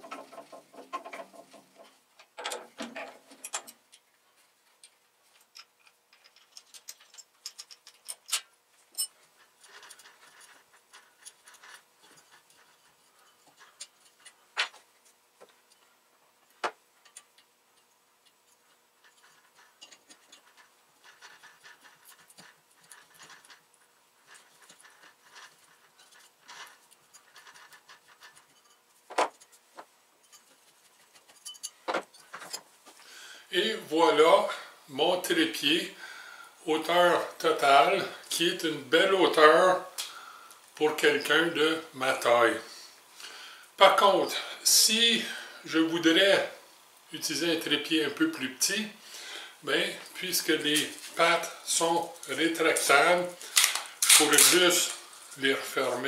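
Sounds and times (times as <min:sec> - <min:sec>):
hand tools clicking on metal: 0:05.4 - 0:14.4.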